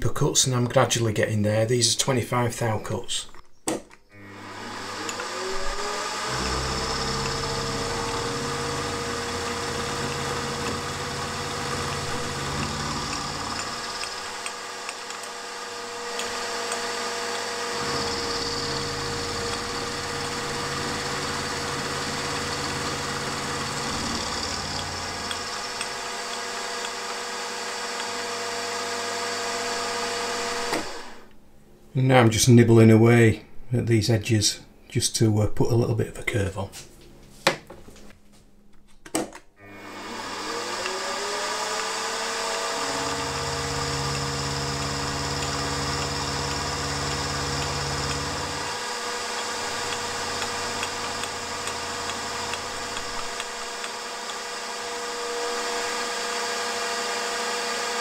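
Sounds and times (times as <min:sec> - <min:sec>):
end mill cutting aluminium: 0:04.2 - 0:31.2, 0:39.6 - 0:58.0
milling machine spindle whine: 0:04.2 - 0:31.2, 0:39.6 - 0:58.0.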